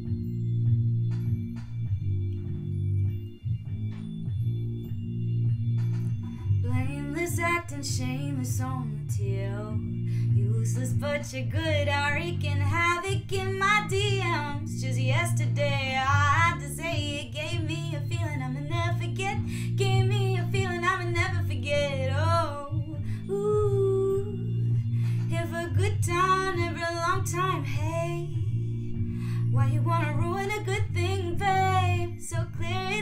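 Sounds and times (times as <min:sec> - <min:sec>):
woman singing: 0:06.6 - 0:28.9, 0:29.5 - 0:33.0.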